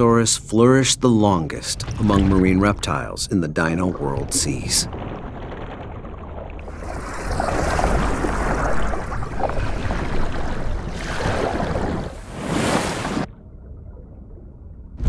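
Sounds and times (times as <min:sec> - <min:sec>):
water churning underwater: 0:01.5 - 0:15.0
low underwater rumble: 0:03.9 - 0:11.0.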